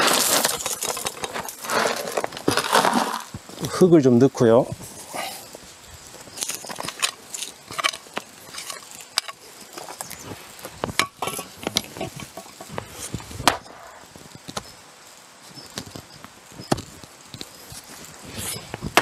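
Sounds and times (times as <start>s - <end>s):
stones knocking: 0.0s - 3.7s, 6.4s - 14.7s, 18.7s - 19.0s
hoe chopping and scraping soil: 0.0s - 3.8s, 6.3s - 14.7s, 15.6s - 19.0s.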